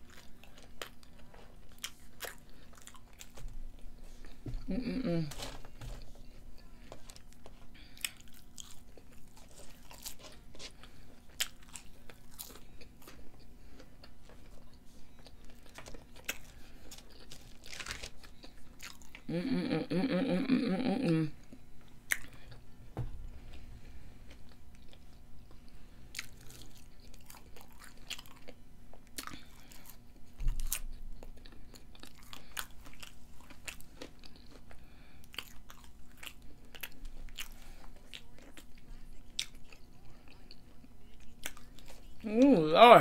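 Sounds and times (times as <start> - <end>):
close chewing with mouth clicks: 0.0 - 4.4, 6.6 - 19.3, 22.0 - 22.6, 24.2 - 42.2
dull thump: 23.0 - 23.2.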